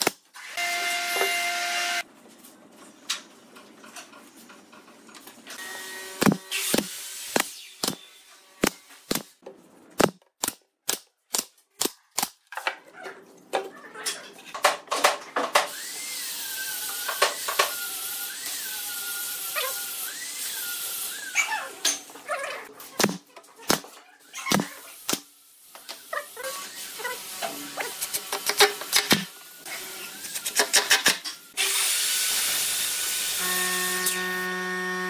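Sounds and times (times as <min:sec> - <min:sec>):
nail gun firing into wood: 0:28.3 - 0:29.3.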